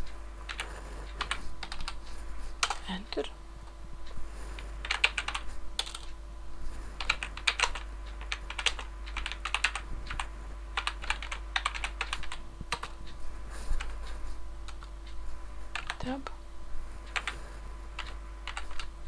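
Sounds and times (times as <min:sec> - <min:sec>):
steady low hum: 0:00.0 - 0:19.0
typing on computer keyboard: 0:00.5 - 0:02.0, 0:02.6 - 0:03.2, 0:04.6 - 0:06.1, 0:07.0 - 0:13.0, 0:14.7 - 0:14.9, 0:15.7 - 0:16.3, 0:17.1 - 0:17.4, 0:18.0 - 0:18.9.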